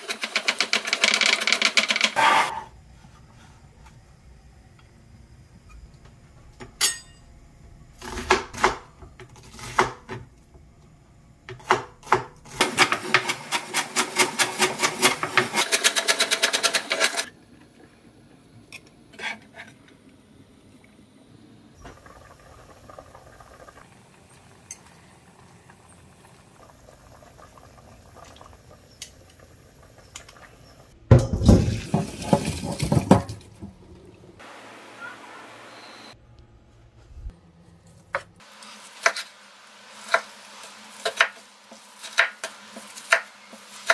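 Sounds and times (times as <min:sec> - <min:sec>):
knife chopping onion on wooden board: 0:09.5 - 0:10.2, 0:11.5 - 0:12.4.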